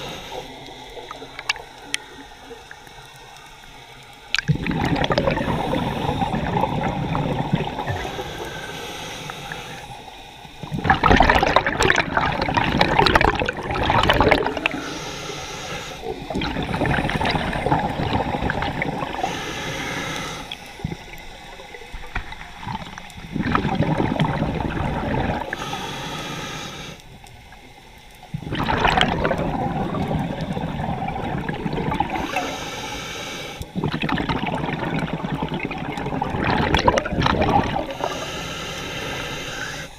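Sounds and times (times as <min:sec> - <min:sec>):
regulator hissing inhale: 0:00.0 - 0:03.3, 0:05.2 - 0:07.1, 0:07.7 - 0:10.6, 0:14.4 - 0:21.8, 0:25.0 - 0:27.3, 0:32.0 - 0:33.8, 0:37.7 - 0:39.9
exhaled bubbles rushing: 0:04.3 - 0:08.5, 0:10.6 - 0:14.9, 0:16.0 - 0:19.4, 0:20.8 - 0:25.6, 0:28.3 - 0:32.5, 0:33.8 - 0:38.2.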